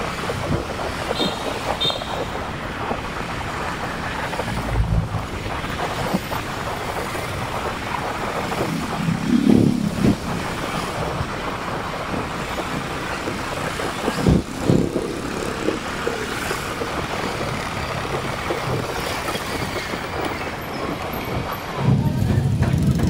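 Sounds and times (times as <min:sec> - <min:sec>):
engine and road noise: 0:00.0 - 0:23.0
motorcycle traffic: 0:00.0 - 0:23.0
low thumps: 0:04.4 - 0:05.8.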